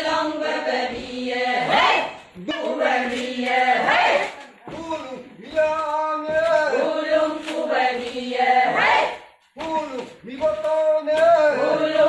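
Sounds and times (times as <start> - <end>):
women chanting in unison: 0.0 - 4.5, 6.7 - 9.3, 11.6 - 12.0.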